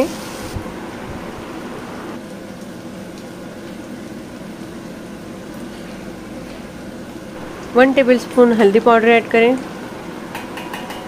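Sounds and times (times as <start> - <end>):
meat and onions sizzling in pot: 0.0 - 2.1.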